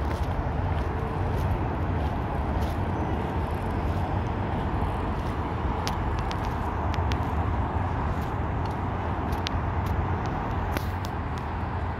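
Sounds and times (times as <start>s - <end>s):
distant road traffic rumble: 0.0s - 11.9s.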